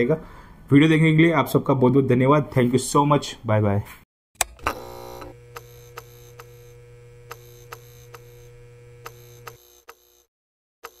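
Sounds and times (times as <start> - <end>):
electrical hum: 4.4 - 10.1.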